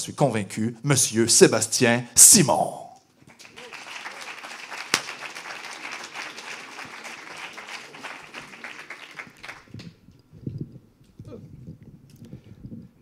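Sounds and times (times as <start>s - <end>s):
audience applauding: 3.3s - 10.0s.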